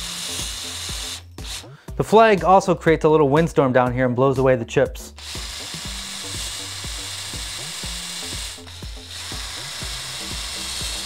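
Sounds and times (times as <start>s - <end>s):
cordless drill boring into wood: 0.0s - 1.7s, 5.2s - 11.0s.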